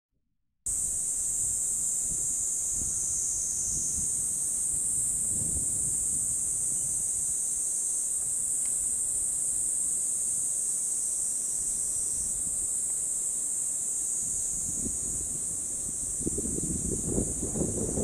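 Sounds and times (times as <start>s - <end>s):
insect chorus: 0.7s - 18.0s
wind buffeting microphone: 2.0s - 7.3s, 14.3s - 18.0s.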